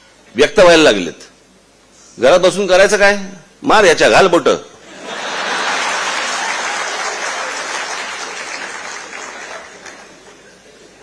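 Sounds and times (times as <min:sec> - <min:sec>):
audience applauding: 0:05.0 - 0:10.7.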